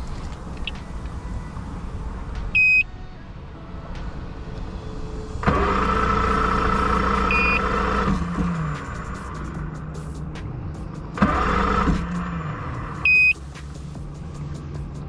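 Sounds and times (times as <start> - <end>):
warning beep: 2.6 - 2.9, 7.3 - 7.7, 13.0 - 13.4
starter cranking outboard motor: 5.4 - 8.9, 11.2 - 13.2.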